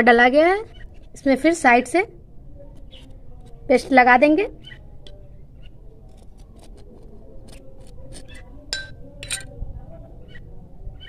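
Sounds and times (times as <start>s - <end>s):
metal spoon scraping on bread: 5.0s - 9.5s.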